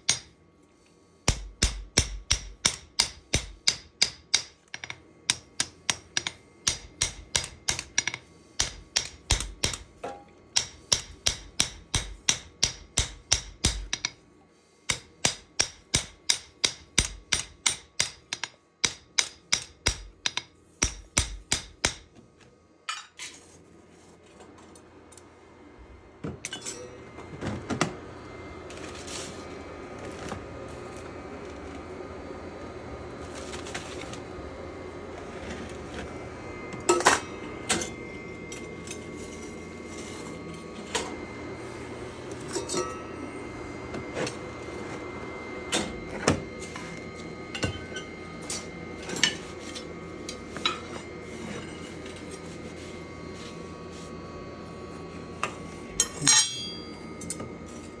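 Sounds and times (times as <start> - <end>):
hammer striking metal: 0.0 - 0.4, 1.3 - 14.2, 14.9 - 22.1, 56.0 - 57.4
steady workshop hum: 0.0 - 58.0
metal clinks: 56.0 - 57.4.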